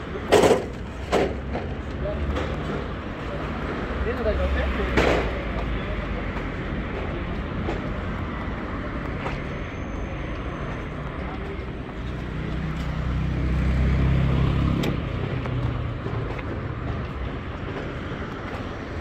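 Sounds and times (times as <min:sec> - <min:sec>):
city street traffic: 0:00.0 - 0:19.0
vehicle engine rumble passing: 0:10.0 - 0:19.0.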